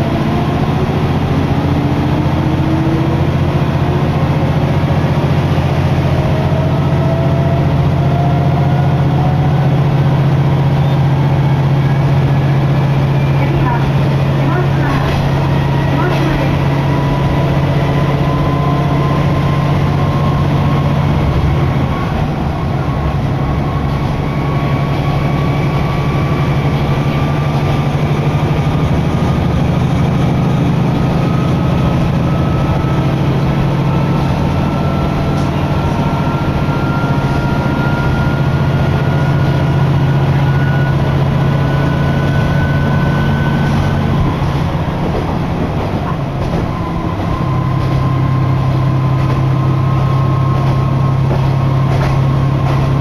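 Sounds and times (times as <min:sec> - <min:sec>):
diesel engine drone: 0:00.0 - 0:53.0.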